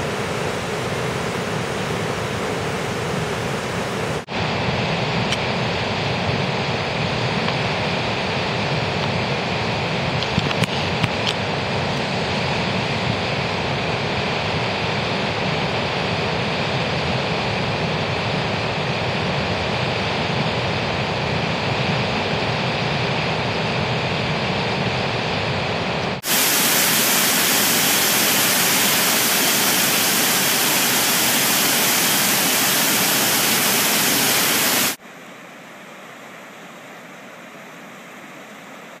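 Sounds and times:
river rushing: 0.0 - 4.5, 26.2 - 39.0.

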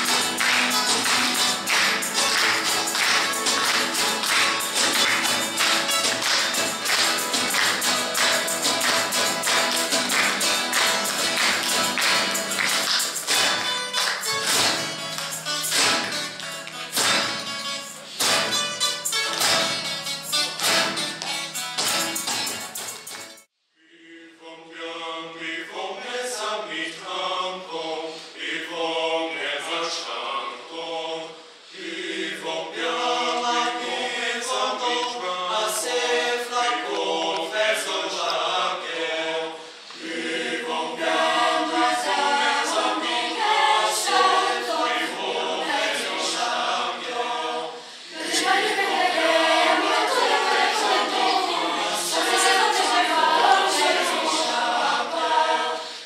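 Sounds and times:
children's choir singing: 0.0 - 14.8, 24.0 - 56.0.

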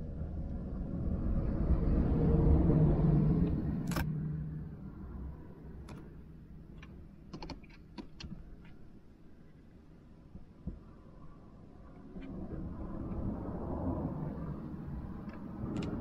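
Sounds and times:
vehicle passing rumble: 0.0 - 6.8, 12.0 - 16.0.

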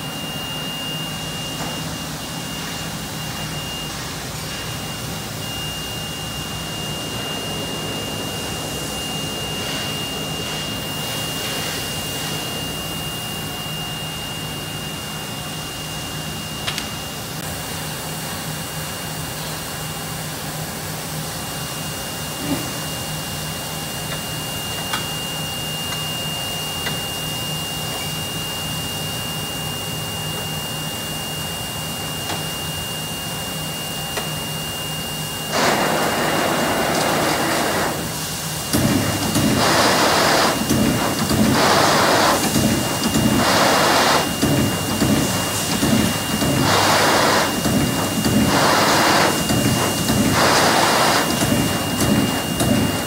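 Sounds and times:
constant high whine: 0.0 - 53.0
shop machinery hum: 0.0 - 53.0
loud rushing hiss: 35.5 - 53.0.

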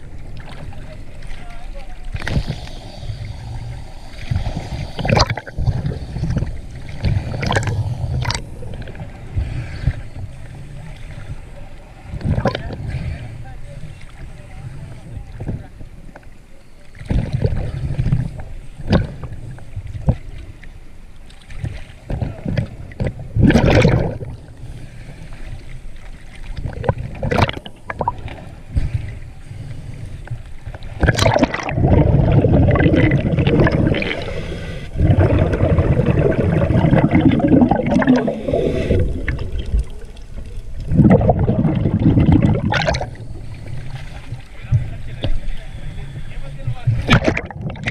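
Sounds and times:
heavy churning water: 0.0 - 47.9
sea water lapping and sloshing: 0.0 - 47.9
sharp water splashes: 21.6 - 24.4, 26.3 - 28.4, 31.0 - 43.2, 47.0 - 47.9.

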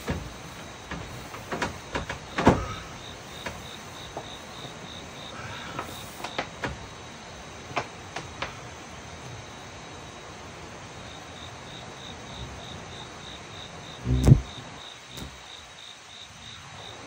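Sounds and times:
wooden bed knocking and creaking: 0.0 - 4.8
crickets chirping: 0.0 - 17.0.

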